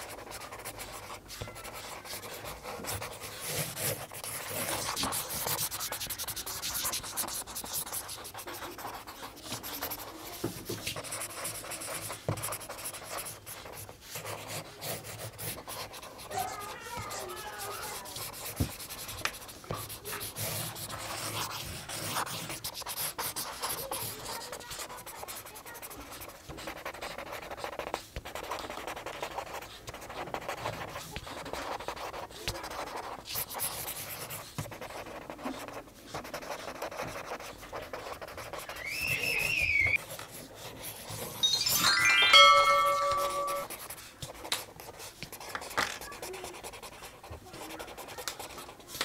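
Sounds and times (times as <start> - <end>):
marker scratching on paper: 0.0 - 41.6, 42.5 - 49.0
whistle-like tone: 38.7 - 40.0, 41.4 - 43.7.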